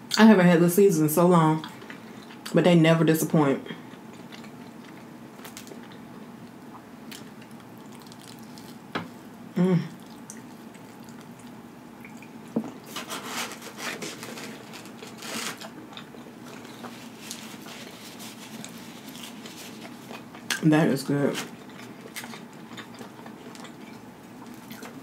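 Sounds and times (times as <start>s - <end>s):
person biting and chewing: 7.1s - 8.8s
person humming: 9.6s - 10.0s.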